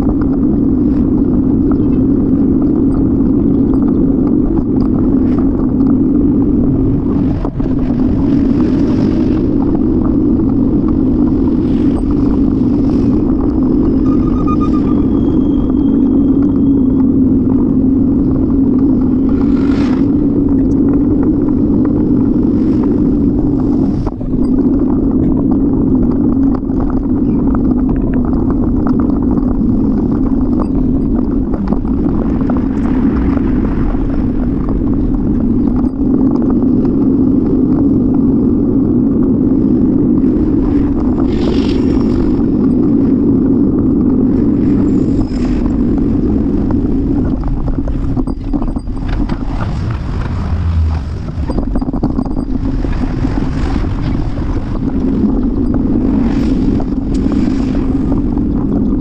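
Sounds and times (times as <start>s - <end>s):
road rumble: 0.0s - 59.0s
wind on microphone: 0.0s - 59.0s.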